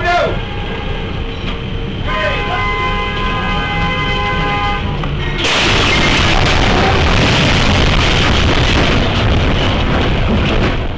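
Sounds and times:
locomotive horn chord: 0:00.0 - 0:05.5
continuous loud crashing: 0:05.4 - 0:10.9
train crashing into bus: 0:05.4 - 0:10.9.

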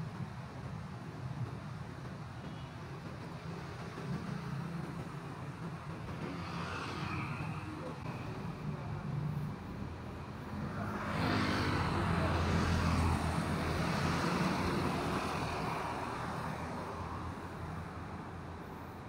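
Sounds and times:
vehicle passing by: 0:10.6 - 0:15.0.

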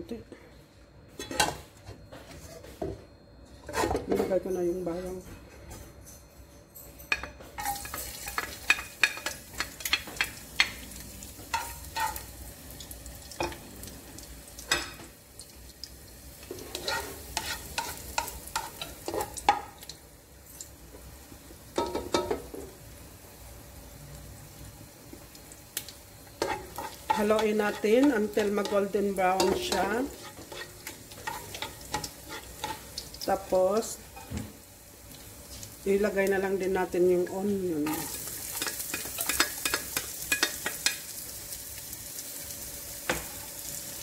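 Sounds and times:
garlic sizzling in oil: 0:07.6 - 0:44.0
spatula scraping a pot: 0:16.5 - 0:19.3, 0:26.4 - 0:33.0.

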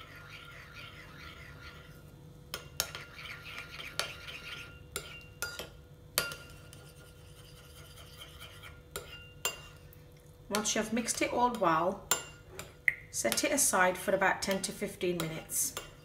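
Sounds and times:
spoon scraping ceramic bowl: 0:00.0 - 0:05.6, 0:06.2 - 0:09.8.

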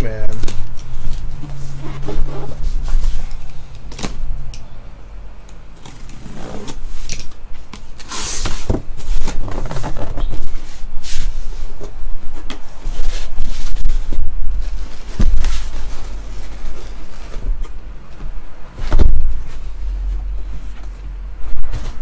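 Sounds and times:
cardboard scraping and rustling: 0:00.5 - 0:04.2, 0:07.9 - 0:17.7.

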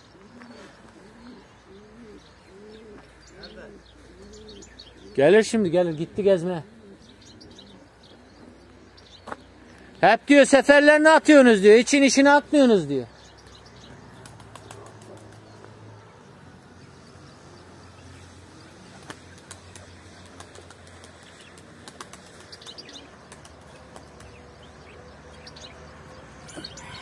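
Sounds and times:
pigeon wings flapping: 0:14.2 - 0:15.4, 0:18.9 - 0:24.4
soft wing claps: 0:14.2 - 0:15.8.

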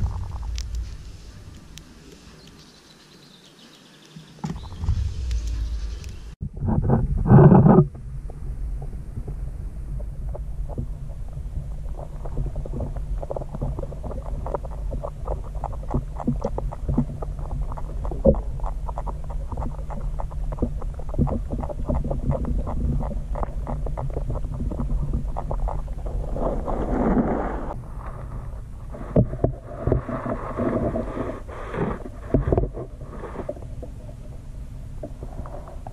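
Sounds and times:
small irregular clicks: 0:00.0 - 0:02.7, 0:10.0 - 0:27.2
underwater low hum: 0:00.0 - 0:03.5, 0:04.4 - 0:35.9.

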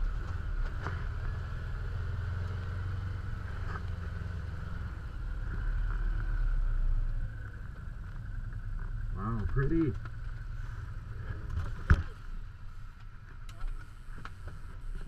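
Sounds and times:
engine low rumble: 0:00.0 - 0:15.0.

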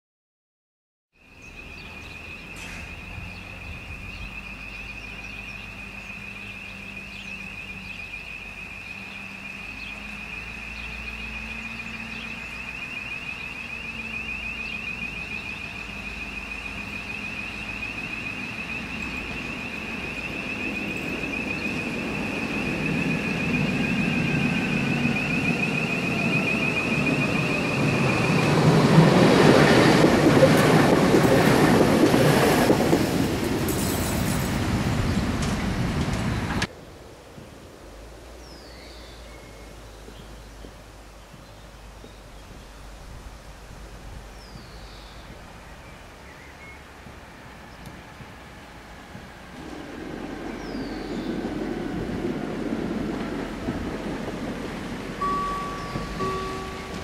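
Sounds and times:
tram running on track: 0:01.3 - 0:36.7, 0:40.1 - 0:57.0
high rapidly pulsing tone: 0:07.0 - 0:29.3, 0:55.2 - 0:57.0.

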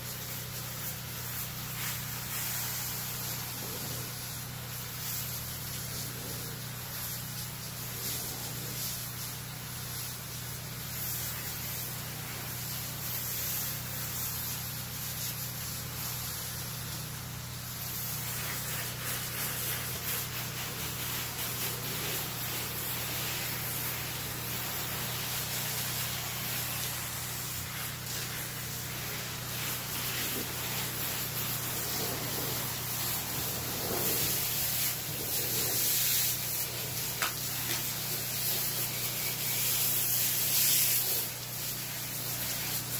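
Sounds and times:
spray wand hissing: 0:00.0 - 0:42.9
steady low hum: 0:17.7 - 0:39.7.

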